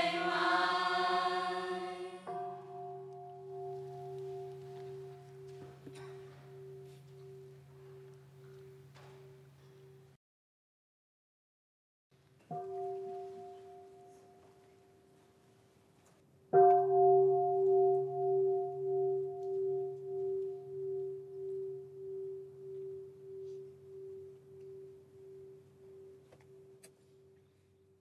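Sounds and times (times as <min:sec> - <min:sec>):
bowl bell ringing: 0:00.0 - 0:10.1, 0:16.6 - 0:27.6.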